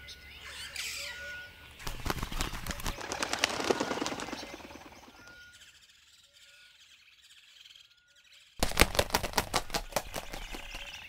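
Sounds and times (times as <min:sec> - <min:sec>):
bird wings flapping: 0:01.8 - 0:05.4, 0:08.6 - 0:11.0.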